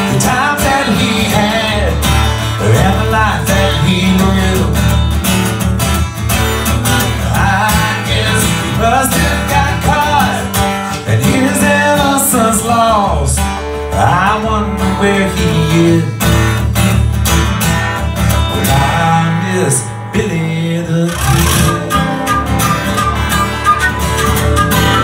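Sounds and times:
strummed acoustic guitars: 0:00.0 - 0:25.0
flute melody: 0:21.2 - 0:25.0.

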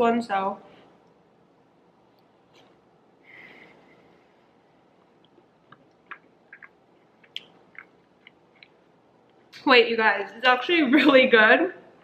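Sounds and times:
faint chewing: 0:04.9 - 0:09.5
wet mouth clicks: 0:05.2 - 0:08.8.

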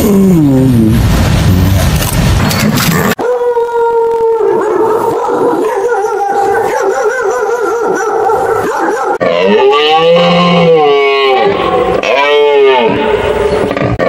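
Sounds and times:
rough noise burst: 0:00.0 - 0:03.2
dog howling: 0:03.1 - 0:13.0.

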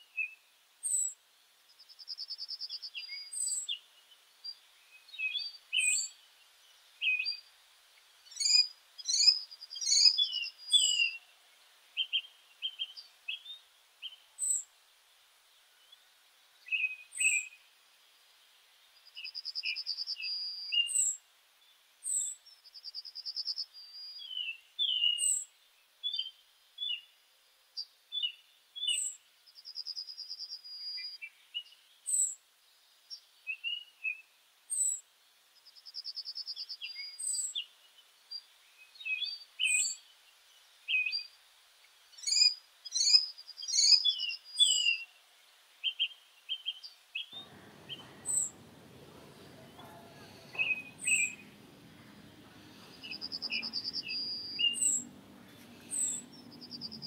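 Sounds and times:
low background noise: 0:00.0 - 0:57.0
small birds chirping: 0:00.0 - 0:57.0
bird trills: 0:47.3 - 0:57.0.

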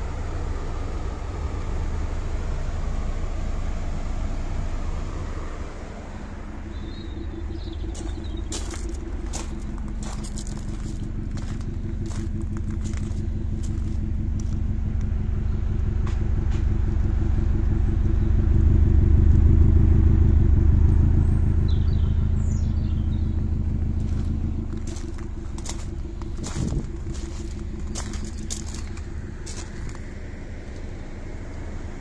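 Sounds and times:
car engine idling: 0:00.0 - 0:32.0.

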